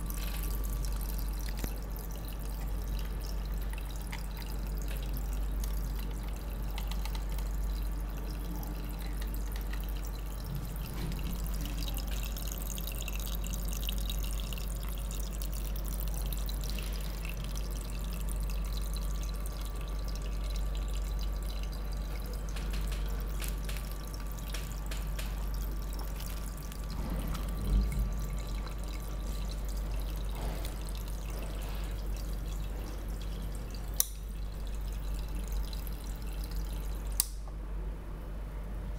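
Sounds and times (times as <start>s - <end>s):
water trickling and dripping: 0.0s - 37.4s
low hum: 25.6s - 37.4s.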